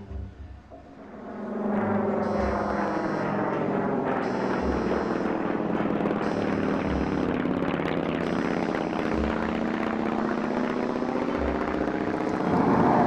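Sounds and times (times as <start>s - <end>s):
radial aircraft engine running: 0.0s - 13.0s.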